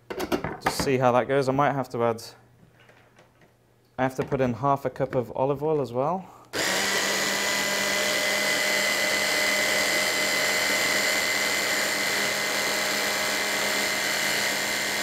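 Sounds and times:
electric stick blender chopping: 0:06.5 - 0:15.0.

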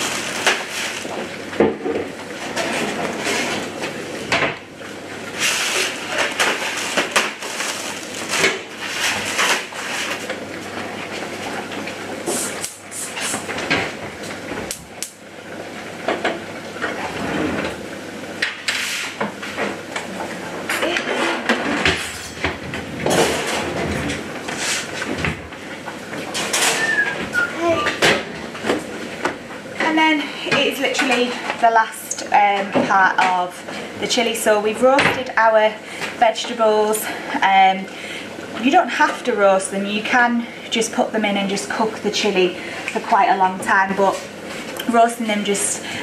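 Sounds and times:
oven door: 0:20.7 - 0:28.8.

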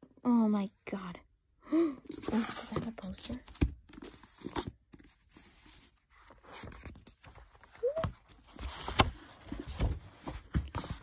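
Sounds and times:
paper rustling: 0:02.1 - 0:11.0.

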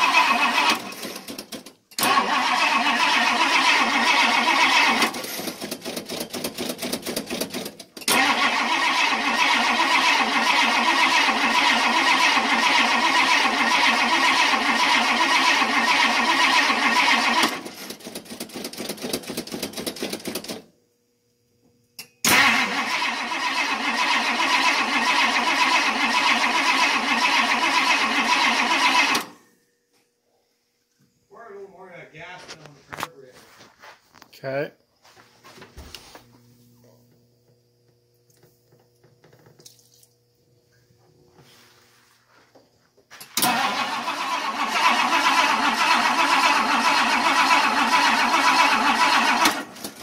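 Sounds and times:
car engine cranking on starter: 0:00.0 - 0:20.6, 0:22.2 - 0:29.4, 0:43.2 - 0:50.0.

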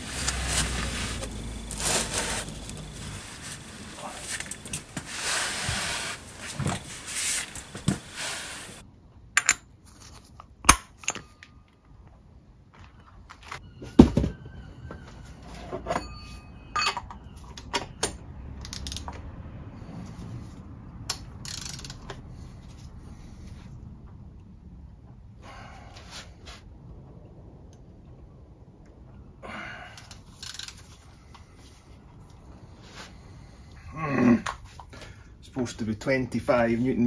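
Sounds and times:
ratchet clicking on metal: 0:21.1 - 0:22.1.

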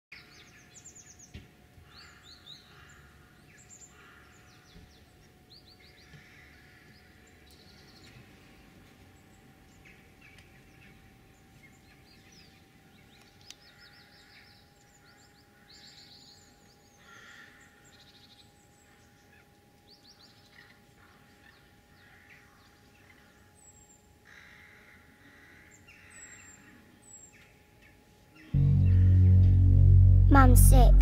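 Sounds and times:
rooks cawing: 0:01.9 - 0:04.8, 0:06.0 - 0:07.2, 0:17.0 - 0:17.8, 0:22.0 - 0:22.6, 0:24.2 - 0:26.8.

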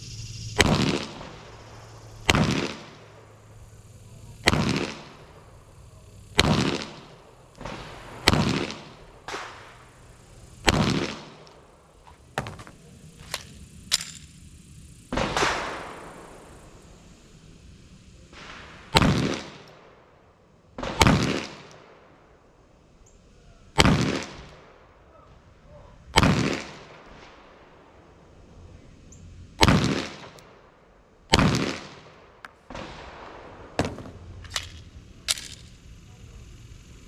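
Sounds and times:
pistol shots with echo: 0:00.6 - 0:01.4, 0:02.3 - 0:03.5, 0:04.4 - 0:11.7, 0:15.1 - 0:16.3, 0:18.3 - 0:20.1, 0:20.8 - 0:22.2, 0:23.8 - 0:25.0, 0:26.2 - 0:27.4, 0:29.6 - 0:30.7, 0:31.3 - 0:35.6.

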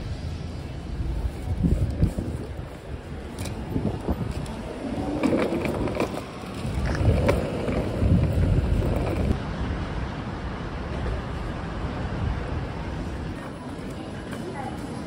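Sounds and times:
suitcase wheels rolling on concrete: 0:01.2 - 0:09.4.

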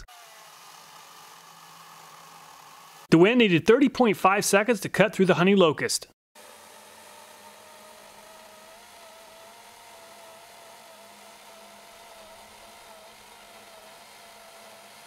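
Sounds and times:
electric chainsaw cutting log: 0:00.0 - 0:03.1, 0:06.4 - 0:15.0.

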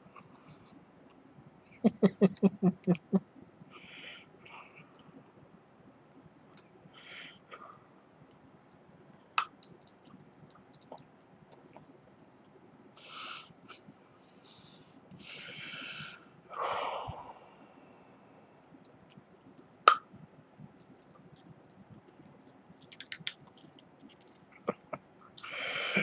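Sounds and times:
tongue and teeth clicking on candy: 0:09.4 - 0:11.9, 0:18.6 - 0:25.0.

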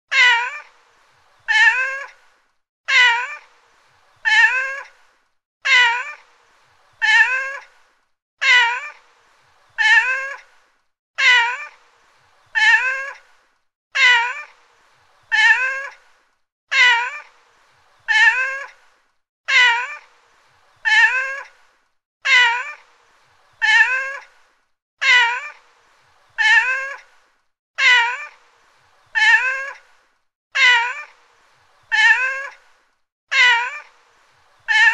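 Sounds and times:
cat meowing: 0:00.1 - 0:00.7, 0:01.5 - 0:02.1, 0:02.9 - 0:03.4, 0:04.2 - 0:04.9, 0:05.7 - 0:06.2, 0:07.0 - 0:07.6, 0:08.4 - 0:09.0, 0:09.8 - 0:10.4, 0:11.2 - 0:11.7, 0:12.6 - 0:13.2, 0:14.0 - 0:14.5, 0:15.3 - 0:16.0, 0:16.7 - 0:17.3, 0:18.1 - 0:18.7, 0:19.5 - 0:20.0, 0:20.8 - 0:21.5, 0:22.2 - 0:22.8, 0:23.6 - 0:24.2, 0:25.0 - 0:25.5, 0:26.4 - 0:27.0, 0:27.8 - 0:28.4, 0:29.2 - 0:29.8, 0:30.6 - 0:31.1, 0:31.9 - 0:32.6, 0:33.3 - 0:33.9, 0:34.7 - 0:34.9.

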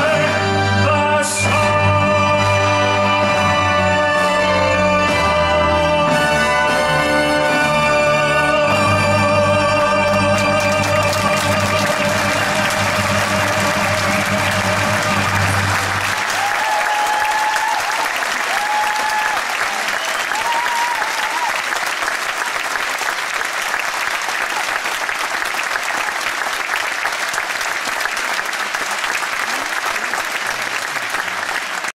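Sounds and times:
audience clapping: 0:09.6 - 0:32.0
crowd calling out: 0:11.0 - 0:21.6.

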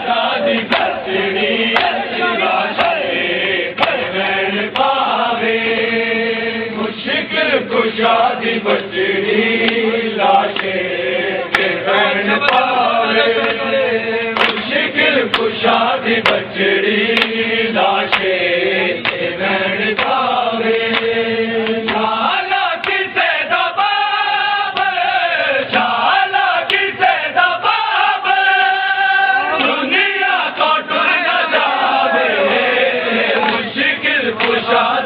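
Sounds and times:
men chanting a lament: 0:00.0 - 0:35.0
chest-beating slaps: 0:00.5 - 0:01.0, 0:03.8 - 0:04.1, 0:10.5 - 0:10.8, 0:11.5 - 0:11.8, 0:14.4 - 0:14.7, 0:17.1 - 0:17.4, 0:19.0 - 0:19.3.

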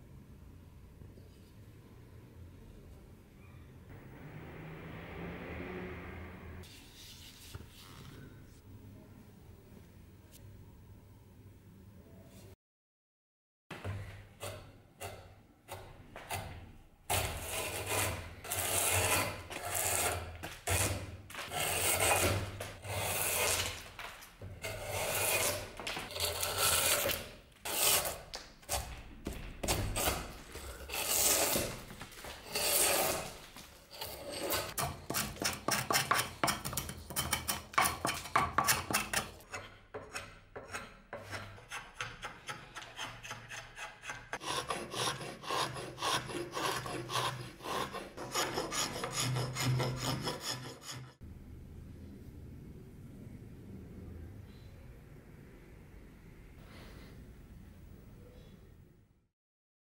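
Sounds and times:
drawknife shaving wood: 0:17.1 - 0:23.9, 0:24.6 - 0:28.9, 0:29.6 - 0:51.2.

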